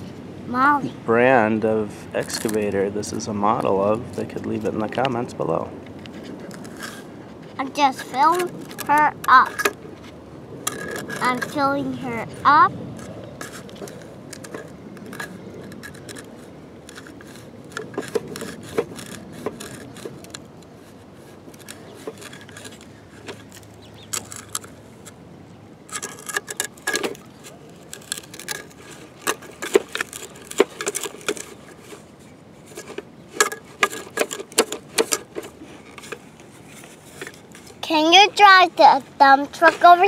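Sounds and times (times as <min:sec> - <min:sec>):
plastic scraping and clicking: 0:02.2 - 0:02.8, 0:05.9 - 0:12.3, 0:12.9 - 0:25.2, 0:25.9 - 0:38.2.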